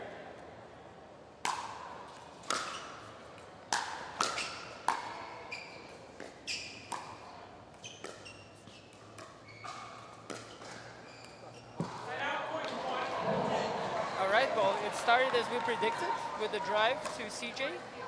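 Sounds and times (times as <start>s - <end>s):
paddles hitting ball: 1.4s - 3.1s, 3.7s - 5.3s, 6.2s - 13.5s.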